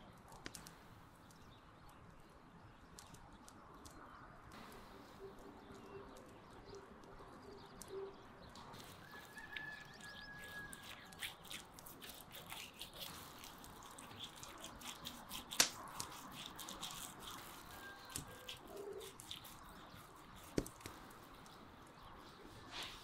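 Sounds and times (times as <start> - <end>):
faint birdsong: 0.0 - 23.0
basting brush dabbing on meat: 5.4 - 23.0.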